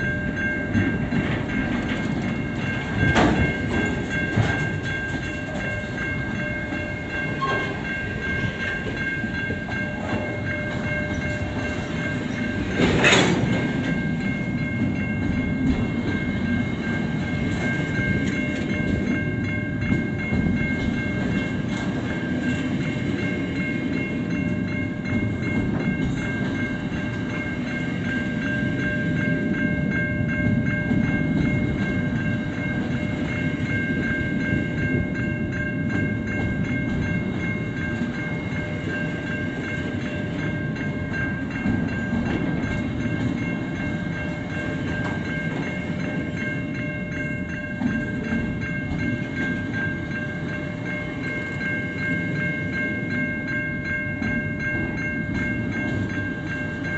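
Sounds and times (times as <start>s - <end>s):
train wheels rumbling on rails: 0.0s - 56.9s.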